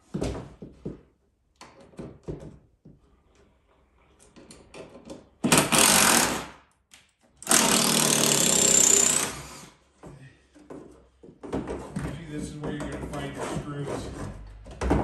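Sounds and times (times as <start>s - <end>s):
handheld power tool running: 5.5s - 6.5s, 7.4s - 9.7s.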